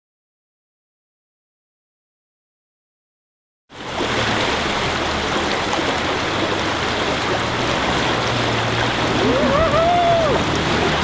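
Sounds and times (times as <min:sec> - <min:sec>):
river water rushing: 0:03.7 - 0:11.0.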